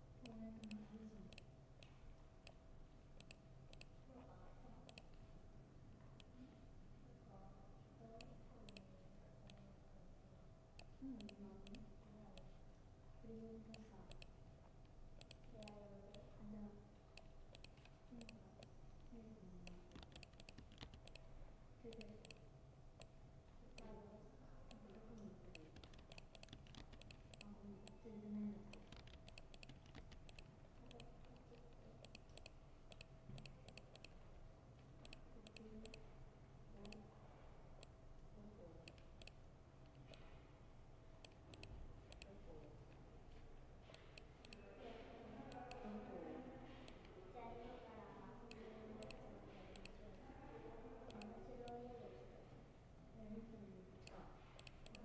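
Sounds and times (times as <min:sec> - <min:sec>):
faint steady hum: 0:00.0 - 0:55.0
laptop keyboard typing: 0:17.2 - 0:18.4, 0:19.6 - 0:21.3, 0:24.7 - 0:28.0, 0:28.6 - 0:34.2, 0:48.5 - 0:50.0, 0:54.0 - 0:55.0.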